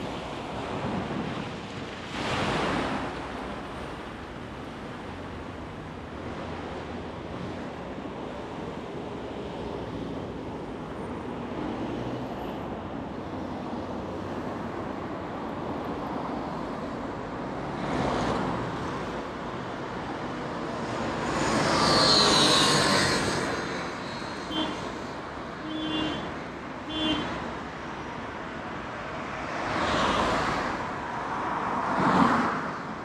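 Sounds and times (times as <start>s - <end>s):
city road traffic: 0.0s - 33.0s.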